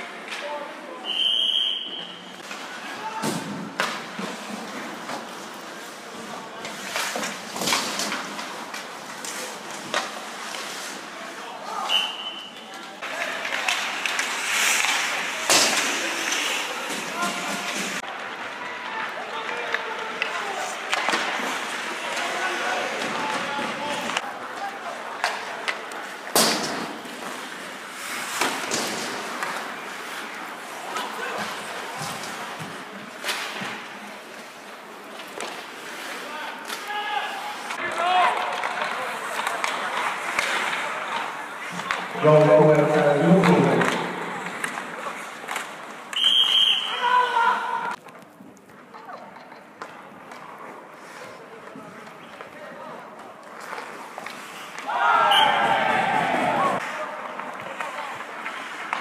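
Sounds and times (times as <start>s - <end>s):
skates scraping on ice: 1.8s - 12.0s, 12.6s - 59.0s
hockey sticks clacking on puck: 2.4s - 11.1s, 12.6s - 55.0s, 56.8s - 59.0s
hockey sticks and puck knocking: 13.0s - 27.4s, 37.7s - 46.7s, 56.8s - 59.0s.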